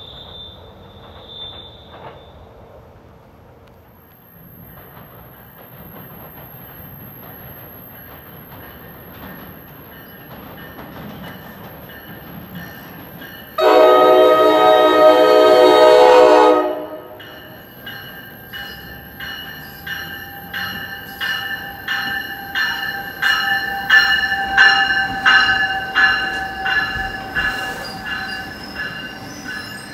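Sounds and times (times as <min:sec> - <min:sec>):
train rumbling on rails: 0:00.0 - 0:29.9
train air horn blast: 0:13.6 - 0:17.2.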